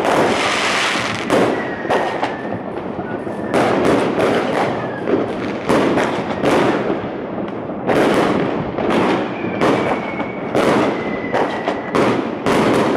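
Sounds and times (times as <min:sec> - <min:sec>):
thin high whistle: 0:09.2 - 0:11.9.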